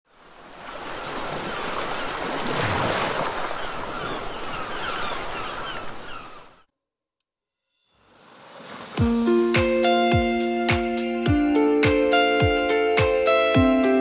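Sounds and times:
wind: 0.0s - 6.7s.

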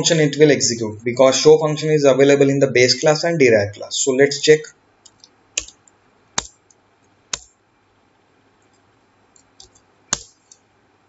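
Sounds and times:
computer keys clicking: 5.0s - 7.5s, 8.6s - 10.7s.

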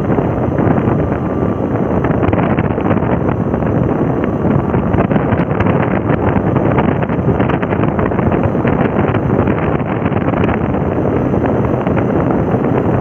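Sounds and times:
motorcycle engine: 0.0s - 13.0s
road noise: 0.0s - 13.0s
wind buffeting microphone: 0.0s - 13.0s.

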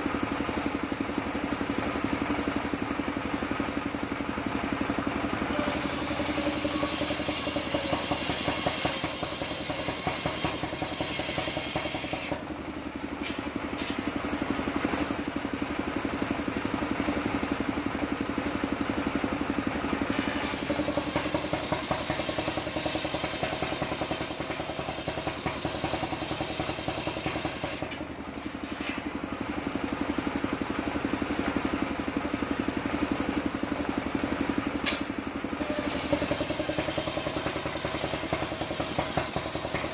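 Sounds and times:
saw engine running: 0.0s - 39.9s
saw blade cutting wood: 5.5s - 12.4s, 20.1s - 29.1s.

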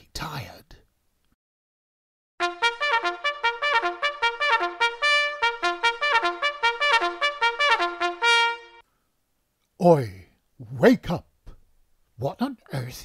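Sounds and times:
trumpet fanfare: 2.4s - 8.8s.

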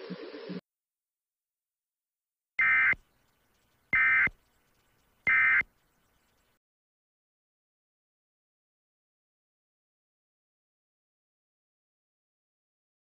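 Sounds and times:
short digital data bursts: 3.6s - 6.4s.

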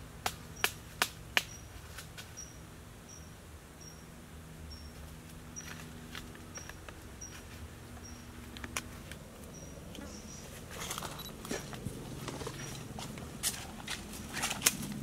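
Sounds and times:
bare feet on dry leaves: 4.9s - 15.0s.

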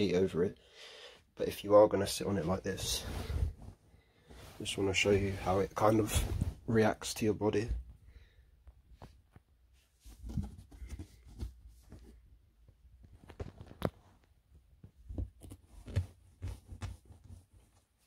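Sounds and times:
mattress rustling and creaking: 2.0s - 7.2s, 12.9s - 18.0s.

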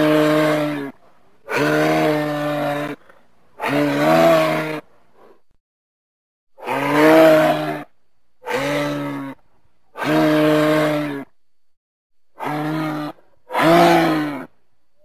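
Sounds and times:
low drawn-out creature calls: 0.0s - 3.0s, 3.6s - 5.4s, 6.6s - 11.4s, 12.4s - 14.6s.

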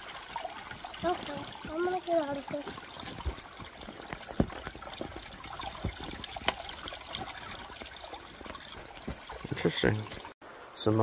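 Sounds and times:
water trickling: 0.0s - 11.0s.

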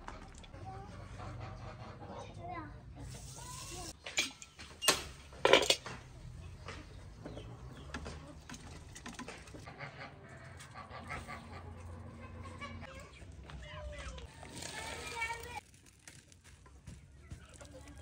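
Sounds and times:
hens clucking: 0.0s - 3.4s, 5.9s - 13.3s
metal pans and lids clanking: 3.9s - 6.1s.

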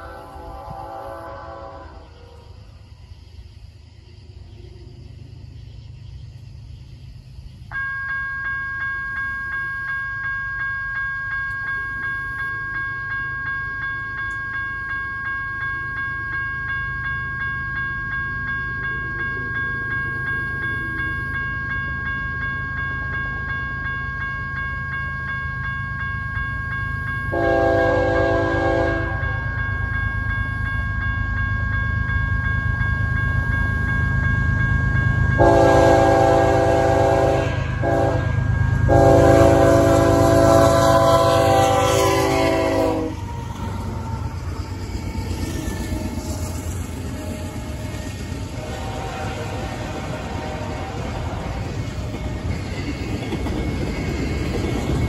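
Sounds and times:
locomotive horn: 0.0s - 2.5s, 27.3s - 29.4s, 35.4s - 43.2s, 48.5s - 51.6s
freight train rumble: 0.0s - 55.0s
railroad crossing bell dinging: 7.6s - 55.0s.

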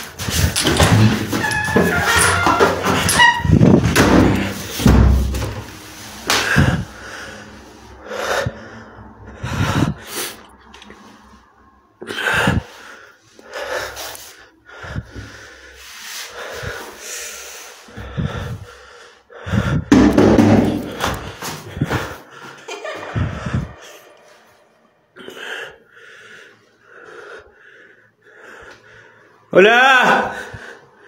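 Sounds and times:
sharp knocks and bumps: 0.2s - 6.8s, 19.8s - 22.2s
person breathing hard and gasping: 6.2s - 11.0s, 12.0s - 20.0s, 20.6s - 29.5s.

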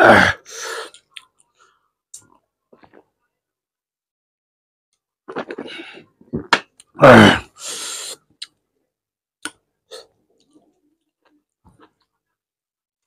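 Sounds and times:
loud burp: 0.0s - 0.4s, 6.4s - 7.6s.

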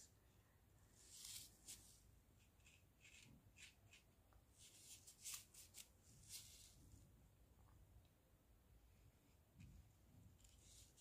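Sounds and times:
brush stroking on paper: 0.9s - 7.0s.

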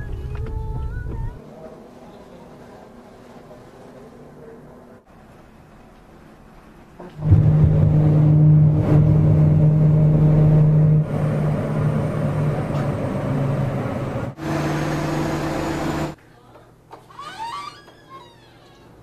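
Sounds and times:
airliner engines humming: 7.6s - 16.2s.

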